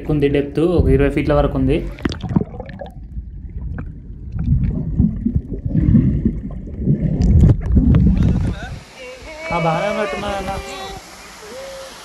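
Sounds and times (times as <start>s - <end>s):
water sloshing and splashing: 1.8s - 9.0s.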